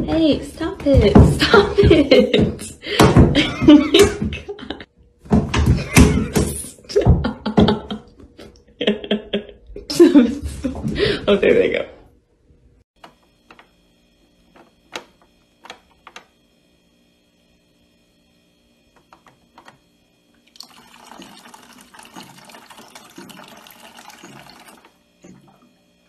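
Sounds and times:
water filling: 20.4s - 25.7s.

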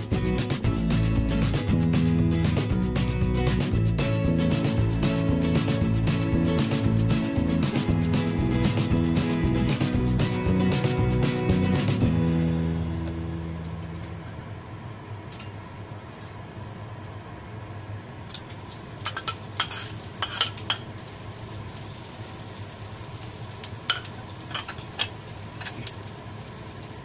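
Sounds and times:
low steady hum: 11.0s - 27.0s.

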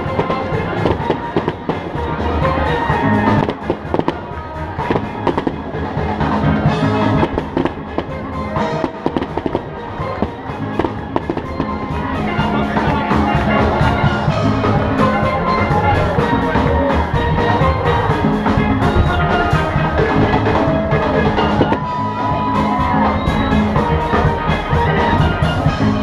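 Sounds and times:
fireworks bangs and crackling: 0.0s - 14.8s, 18.5s - 23.7s
music with a beat: 0.0s - 26.0s.

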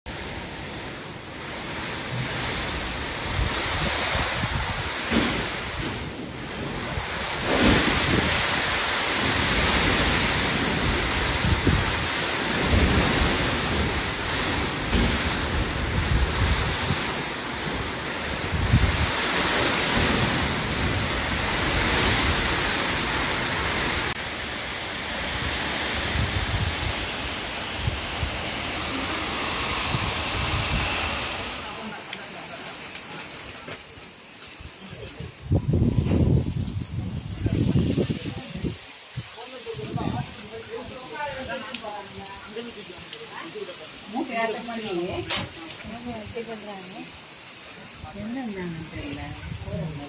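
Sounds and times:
wind buffeting microphone: 0.1s - 33.4s, 34.6s - 41.4s, 48.0s - 50.0s
heavy rain pouring: 0.1s - 50.0s
soft steady rushing noise: 23.9s - 33.6s.

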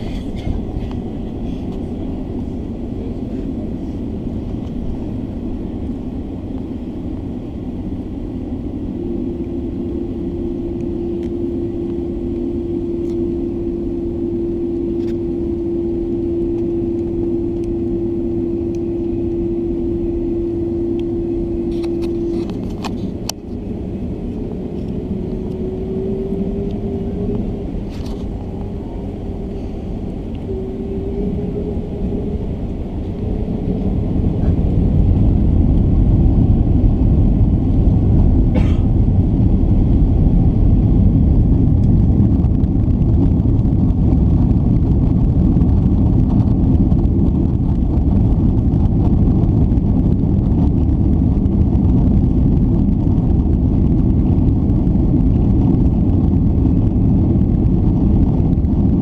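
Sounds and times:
low engine rumble: 0.0s - 59.0s
steady whine: 0.0s - 59.0s
rising tone: 7.2s - 38.4s.

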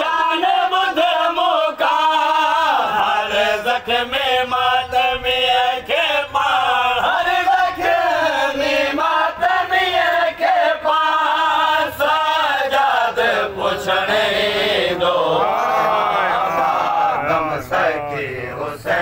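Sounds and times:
men chanting in unison: 0.0s - 19.0s.

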